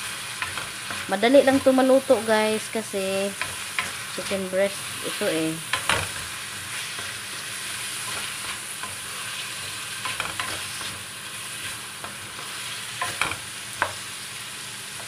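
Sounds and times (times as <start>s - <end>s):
food sizzling in a wok: 0.0s - 15.0s
spatula scraping against pan: 3.3s - 14.0s.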